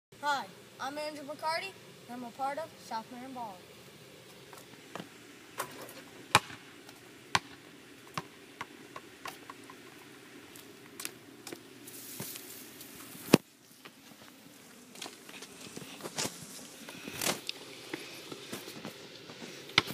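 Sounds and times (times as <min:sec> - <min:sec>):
basketball hitting hoop: 0:06.3 - 0:06.7
basketball bouncing on asphalt: 0:06.3 - 0:09.8.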